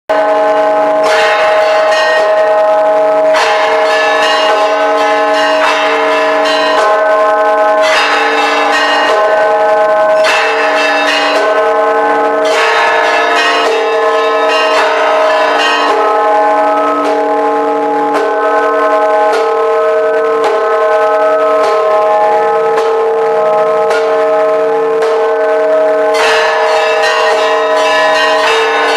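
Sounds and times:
church bells ringing: 0.1s - 28.9s.

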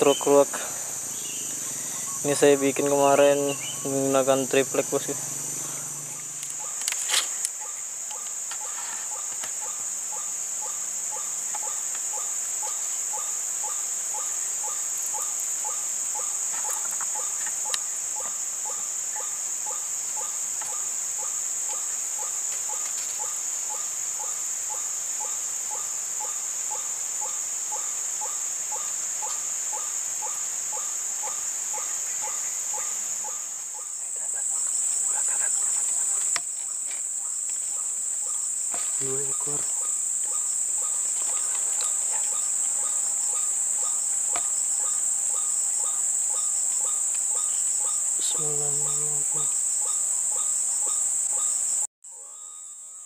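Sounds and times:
high-pitched insect drone: 0.0s - 53.0s.

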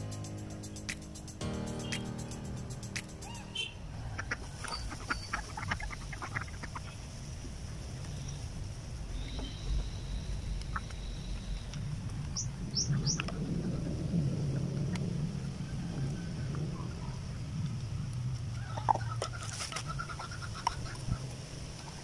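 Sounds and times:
birds chirping: 0.0s - 7.2s, 7.8s - 13.6s.

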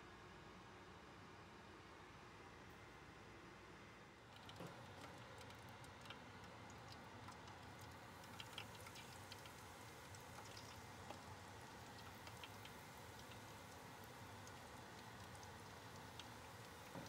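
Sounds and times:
small crackles and pops: 4.2s - 17.0s
shrimp sizzling in oil: 7.9s - 17.0s.

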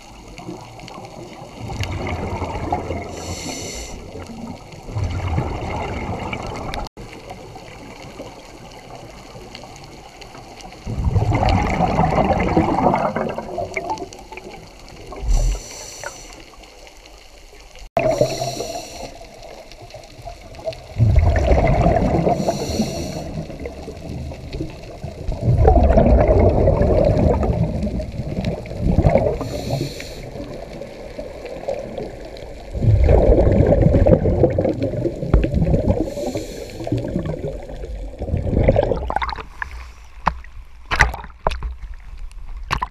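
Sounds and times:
exhaled bubbles rushing: 0.0s - 9.8s, 10.6s - 16.3s, 17.9s - 40.0s
regulator inhalation hiss: 3.2s - 4.2s, 15.3s - 16.6s, 18.0s - 19.5s, 22.3s - 23.5s, 29.4s - 30.5s, 36.0s - 37.0s.

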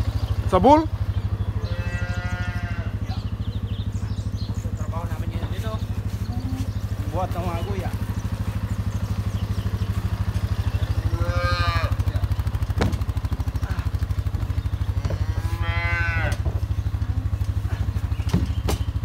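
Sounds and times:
quad bike engine idling: 0.0s - 19.0s
cattle mooing: 1.5s - 3.0s, 11.0s - 12.1s, 14.9s - 18.0s
sharp knocks: 12.6s - 13.2s, 18.2s - 19.0s.

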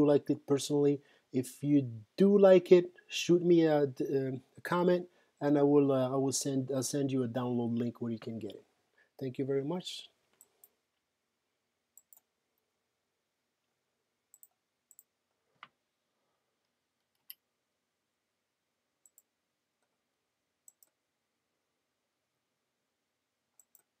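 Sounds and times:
computer mouse clicks: 12.0s - 12.3s, 14.3s - 15.8s, 19.0s - 19.9s, 20.7s - 21.0s, 23.6s - 24.0s.

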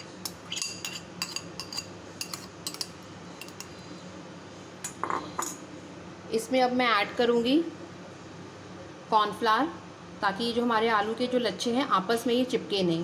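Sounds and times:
steel spoon clinking on bowls: 0.5s - 3.7s.

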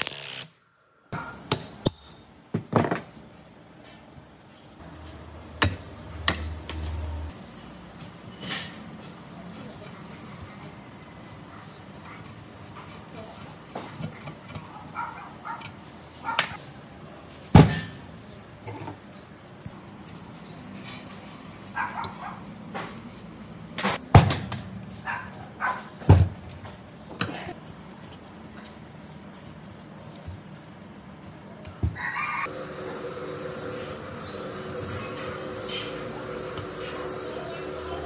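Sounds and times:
faint high-pitched chirping: 28.6s - 38.0s
steady hum: 32.5s - 38.0s.

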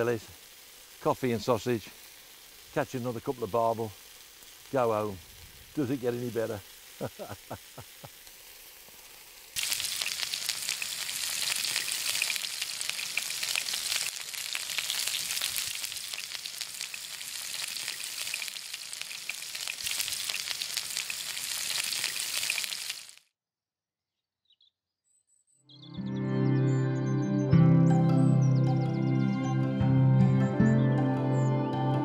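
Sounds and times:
sausages sizzling in a frying pan: 0.0s - 23.3s.

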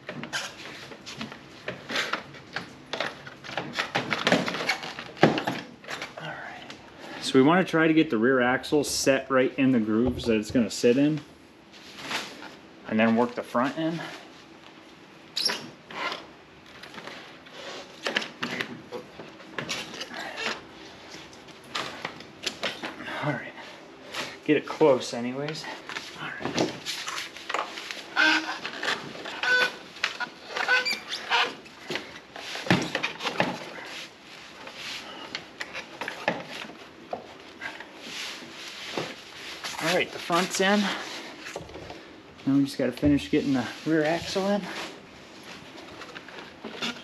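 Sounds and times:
knocks clunks and scraping: 10.0s - 10.7s.

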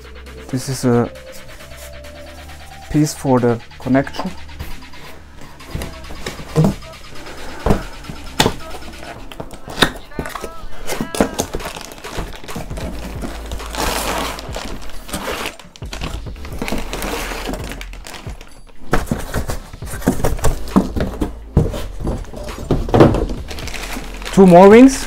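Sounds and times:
knocks and thumps of handled parts: 5.4s - 13.8s, 15.8s - 24.8s.

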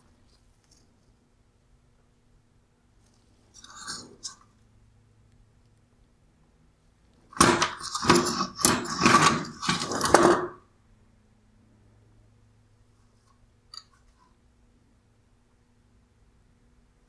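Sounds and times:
headlight parts clattering: 7.4s - 10.6s.

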